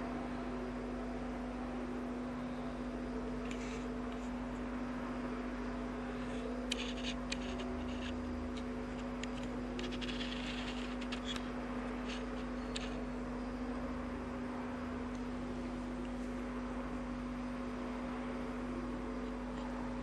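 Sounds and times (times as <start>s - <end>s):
steady low hum: 0.0s - 20.0s
light scratchy rustles: 6.1s - 13.1s.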